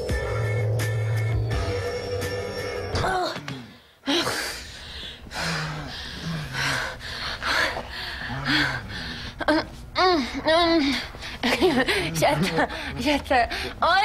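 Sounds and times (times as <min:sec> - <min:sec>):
people breathing hard and gasping: 0:03.1 - 0:13.8
low moans: 0:08.2 - 0:10.9.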